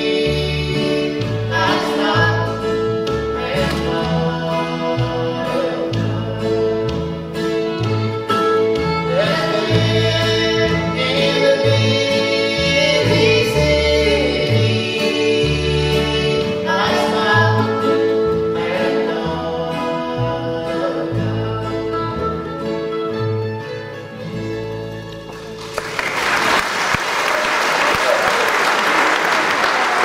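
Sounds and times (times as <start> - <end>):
man and woman singing harmony: 0.0 - 7.0, 9.1 - 22.4
string band playing gospel song: 0.0 - 30.0.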